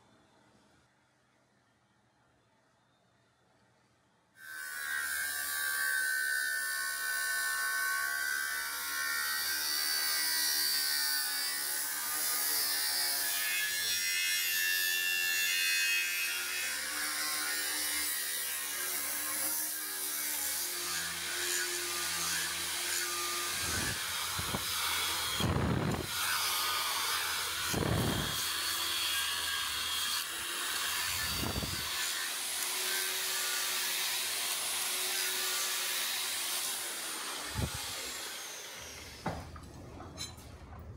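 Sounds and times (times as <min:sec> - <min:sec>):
electric power tool grinding: 0:15.2 - 0:39.4.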